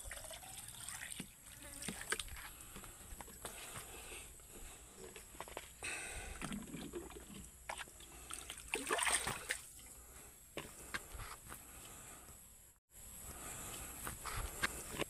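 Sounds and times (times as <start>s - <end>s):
water sloshing and splashing: 6.3s - 9.9s.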